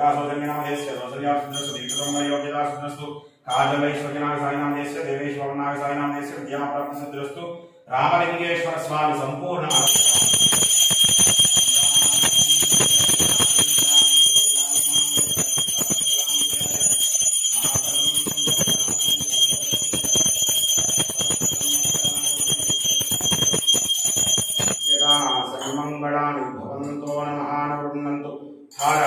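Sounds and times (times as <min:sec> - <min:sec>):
temple bells ringing rapidly: 0:00.5 - 0:02.5, 0:09.7 - 0:26.0, 0:28.7 - 0:29.0.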